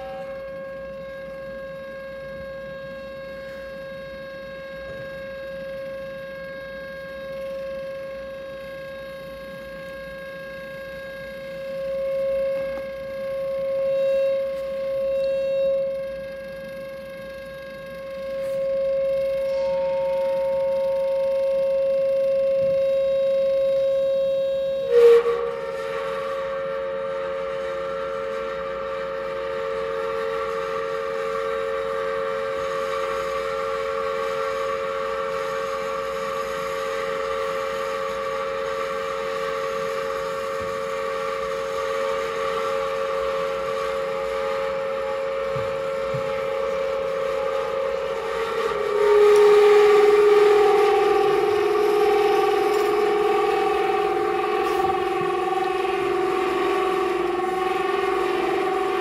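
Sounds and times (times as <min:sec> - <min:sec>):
electronic drone chord: 0:00.0 - 0:03.6, 0:06.5 - 0:27.2, 0:45.0 - 0:59.0.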